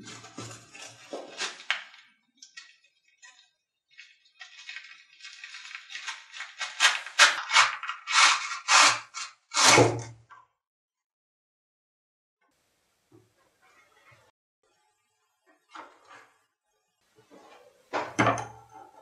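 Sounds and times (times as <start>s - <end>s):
knife scraping out of sheath: 6.6s - 10.1s.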